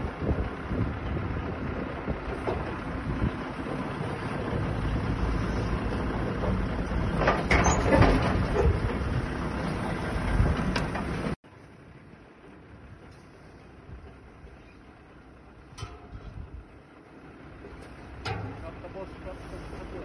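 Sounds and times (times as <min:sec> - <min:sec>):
machinery clatter: 0:00.0 - 0:11.4, 0:17.5 - 0:20.0
tractor engine running: 0:00.0 - 0:20.0.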